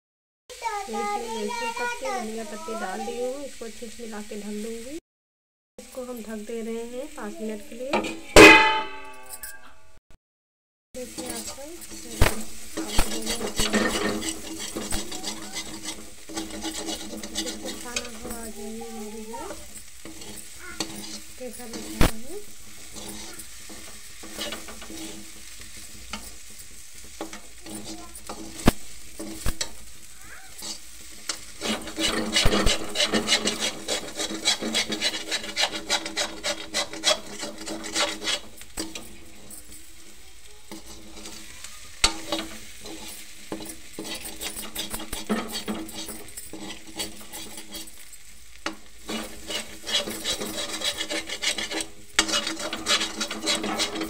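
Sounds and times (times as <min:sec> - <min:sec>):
low sizzle of frying: 0:00.5 - 0:05.0, 0:05.8 - 0:09.0, 0:11.0 - 0:54.0
spatula scraping metal pan: 0:07.2 - 0:09.5, 0:11.0 - 0:54.0
metal knocking on pan: 0:07.9 - 0:09.3.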